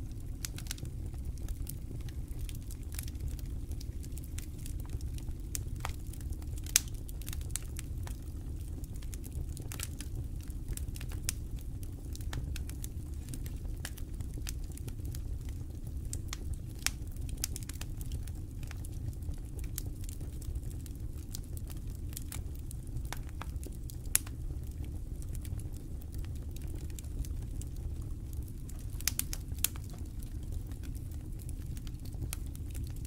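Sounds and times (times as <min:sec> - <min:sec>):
campfire crackling and popping: 0:00.1 - 0:33.0.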